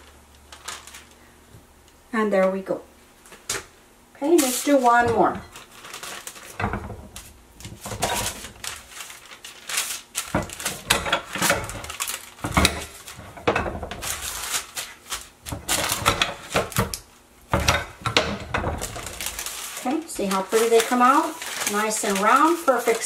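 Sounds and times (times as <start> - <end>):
paper rustling: 0.0 - 1.2, 4.4 - 16.9, 18.6 - 23.0
tortilla press knocking: 10.3 - 14.6.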